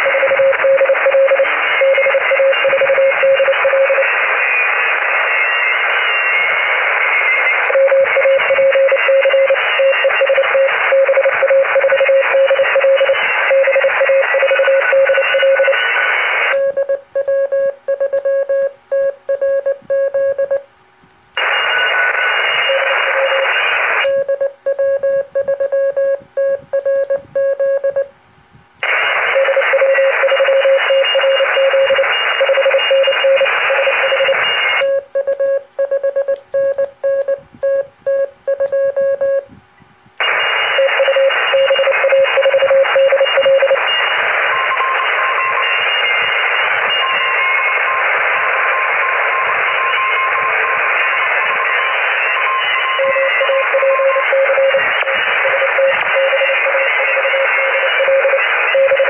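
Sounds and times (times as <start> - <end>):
morse code tone: 0.0 - 4.2, 7.4 - 20.6, 21.4 - 28.1, 29.2 - 39.5, 40.2 - 59.0
radio band hiss: 0.0 - 16.6, 21.4 - 24.0, 28.7 - 34.8, 39.6 - 59.0
fainter higher morse tone: 40.2 - 59.0.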